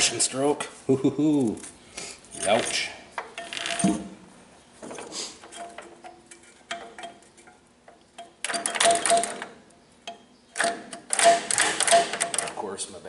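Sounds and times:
metallic rattling: 0:01.5 - 0:04.2, 0:04.8 - 0:12.7
engine turned by hand clicking: 0:05.4 - 0:12.6.

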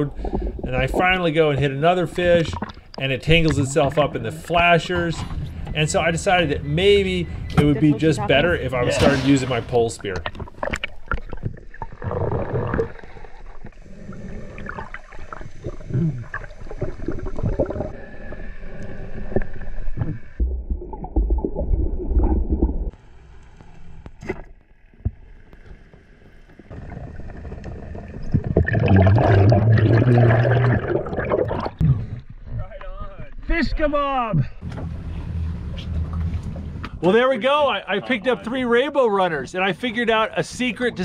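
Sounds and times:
muffled underwater gurgling: 0:10.0 - 0:22.9, 0:26.7 - 0:32.2
loud low hum: 0:34.5 - 0:37.1.

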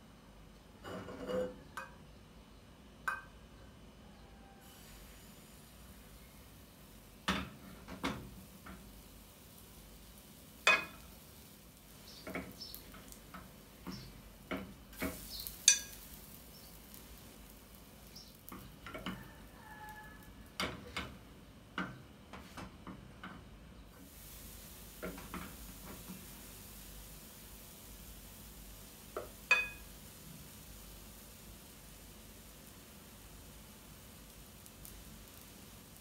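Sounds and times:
batter sizzling: 0:04.6 - 0:22.8, 0:23.9 - 0:36.0
utensils knocking on bowl and pan: 0:10.6 - 0:11.1, 0:13.3 - 0:16.1, 0:18.5 - 0:19.4, 0:29.2 - 0:29.8.

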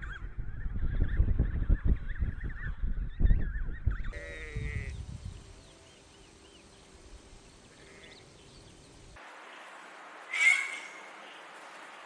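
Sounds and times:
faint bird chirps: 0:10.3 - 0:11.5.

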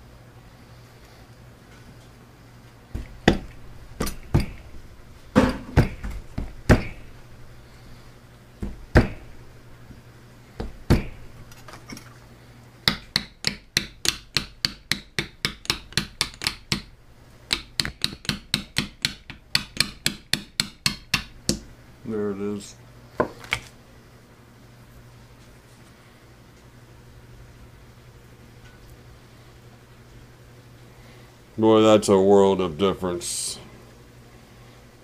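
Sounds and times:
hammer tapping steel tube: 0:03.2 - 0:04.7, 0:12.8 - 0:16.9, 0:17.5 - 0:21.6.

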